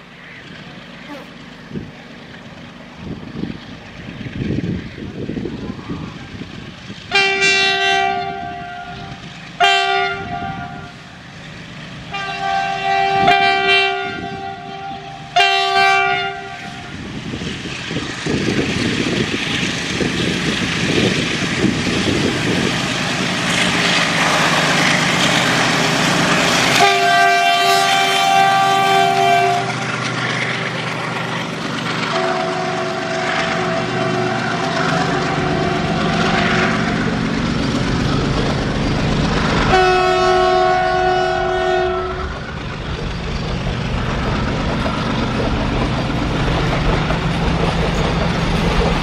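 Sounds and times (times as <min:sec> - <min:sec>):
diesel locomotive engine running: 0:00.0 - 0:49.0
train wheels rumbling: 0:00.0 - 0:49.0
locomotive air horn blasts: 0:07.1 - 0:11.1, 0:12.1 - 0:17.0, 0:26.7 - 0:29.9, 0:32.1 - 0:36.6, 0:39.7 - 0:42.4.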